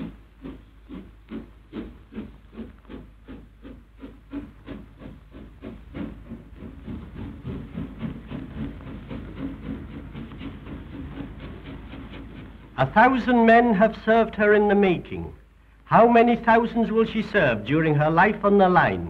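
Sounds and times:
steam locomotive chuffing: 0.0s - 19.0s.

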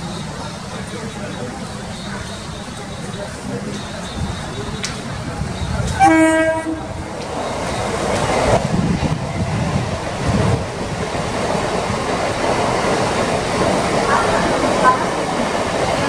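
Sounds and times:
train rushing past: 0.0s - 16.0s
train horn blast: 5.9s - 7.1s.

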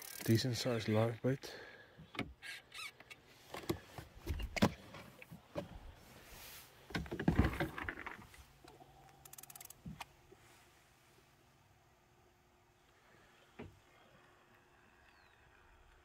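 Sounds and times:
fishing reel clicking: 0.0s - 0.4s, 9.0s - 9.8s
knocks and rustles of fishing gear: 6.9s - 8.6s.

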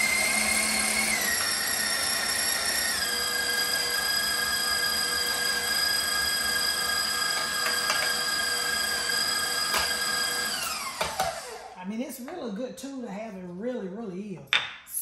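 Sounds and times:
stand mixer motor whining: 0.0s - 11.8s.

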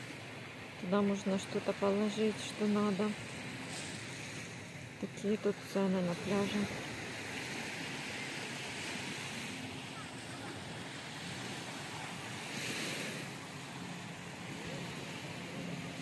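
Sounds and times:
surf washing on beach: 0.0s - 16.0s.

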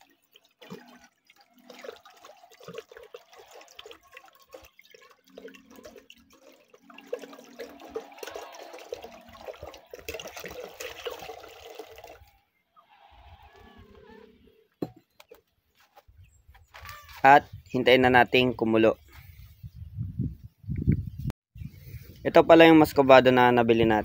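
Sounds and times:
water pouring from a bottle into a pot: 0.0s - 12.4s.

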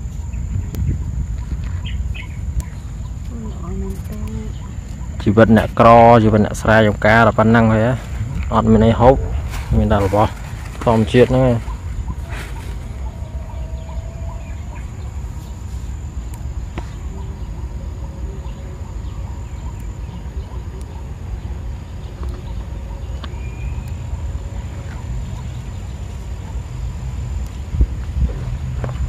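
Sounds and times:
steady low rumble: 0.0s - 29.0s
faint animal calls: 8.5s - 16.1s, 16.8s - 26.7s.

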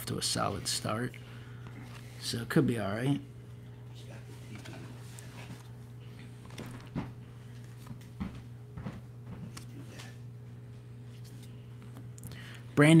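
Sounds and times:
steady low hum: 0.0s - 13.0s
cards tapping and rustling: 6.4s - 8.3s.

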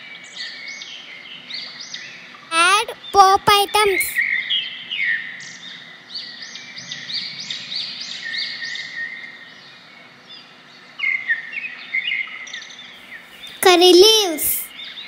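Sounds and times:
faint background hiss: 13.0s - 15.0s.

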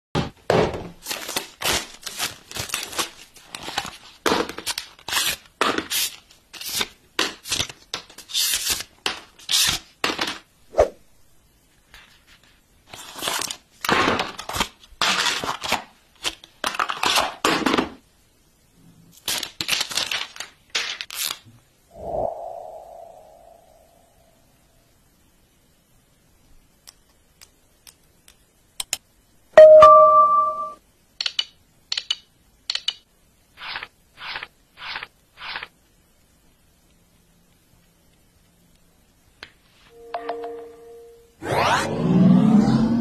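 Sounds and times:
packaging being torn and handled: 1.0s - 8.9s, 19.2s - 21.4s.

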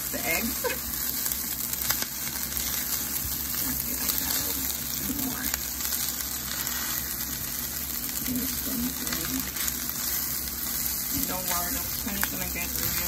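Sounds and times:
fried rice sizzling in skillet: 0.0s - 13.0s
wooden spoon scraping: 6.3s - 7.3s.

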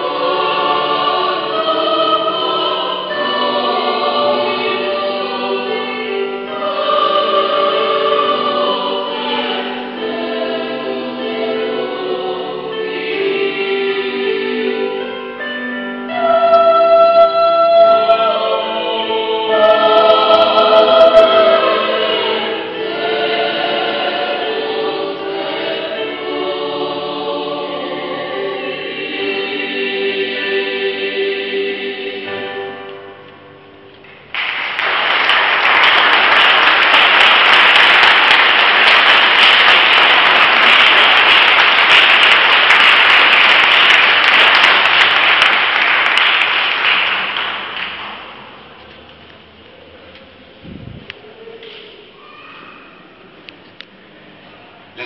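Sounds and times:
choir singing: 0.0s - 33.8s, 34.8s - 47.5s
audience applause: 34.3s - 48.4s.

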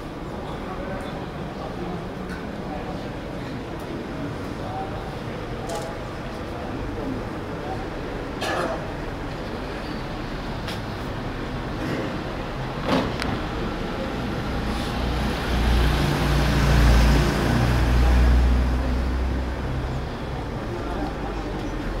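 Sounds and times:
street noise: 0.0s - 22.0s
vehicle passing: 12.8s - 19.9s.

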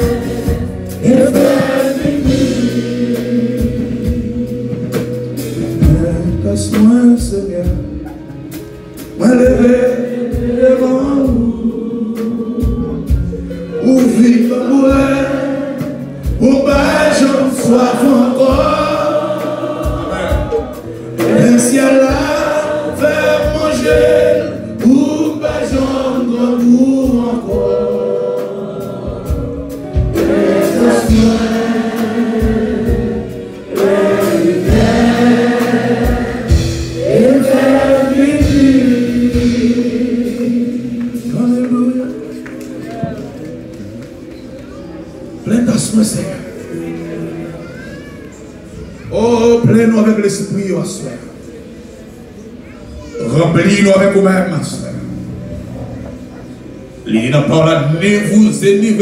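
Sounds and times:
women's choir singing: 0.0s - 5.6s, 9.6s - 13.4s, 14.2s - 42.4s
man leading singing: 0.0s - 8.2s, 9.2s - 43.4s
live instrumental accompaniment: 0.0s - 59.0s.

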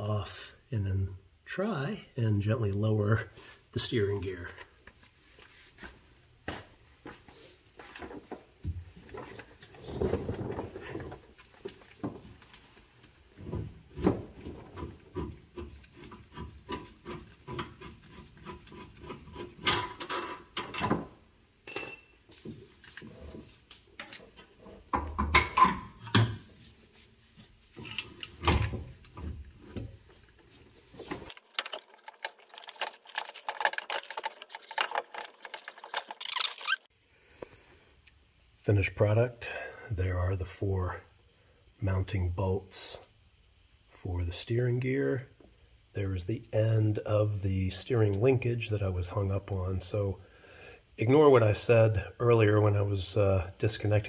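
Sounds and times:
metal parts knocking and scraping: 14.7s - 21.2s, 31.0s - 36.8s.

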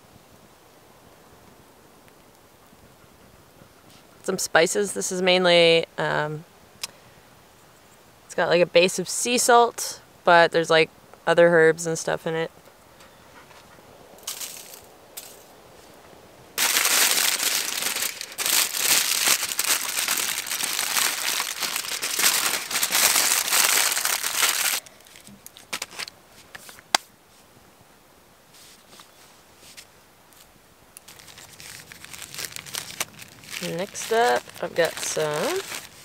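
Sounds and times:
aluminium foil crinkling: 16.6s - 26.8s, 31.0s - 36.0s.

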